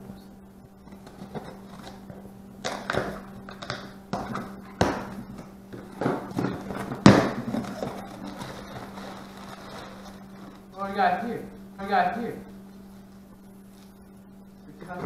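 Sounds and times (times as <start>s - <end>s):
cardboard flaps cracking: 0.9s - 10.7s.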